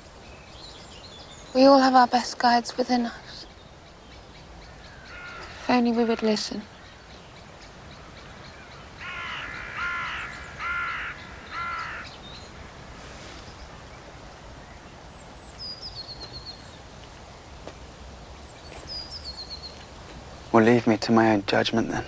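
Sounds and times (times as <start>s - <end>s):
low outdoor background: 0.0s - 22.0s
bird giving loud calls: 4.7s - 6.3s, 8.0s - 12.2s.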